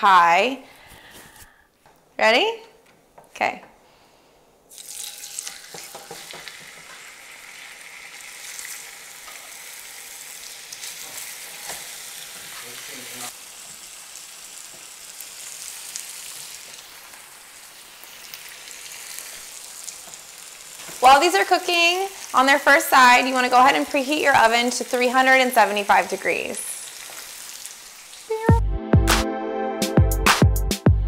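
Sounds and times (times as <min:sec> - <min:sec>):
oil crackles and pops: 0:04.7 - 0:11.8
chicken sizzling in hot oil: 0:04.7 - 0:28.4.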